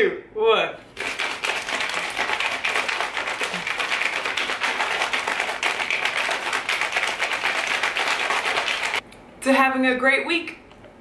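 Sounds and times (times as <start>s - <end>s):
shaker cup sloshing and rattling: 0.9s - 9.0s.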